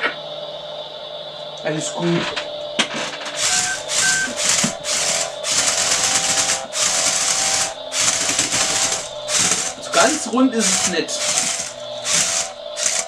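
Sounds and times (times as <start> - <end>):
toy car motors whirring: 3.0 - 13.0.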